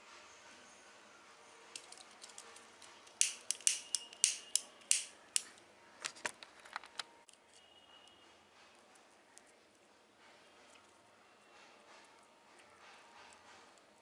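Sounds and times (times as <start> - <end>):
hand tools clicking: 3.1 - 5.5.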